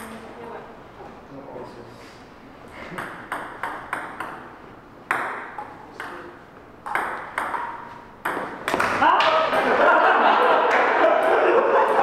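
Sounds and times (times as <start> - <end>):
ping pong ball hits: 2.9 - 9.7.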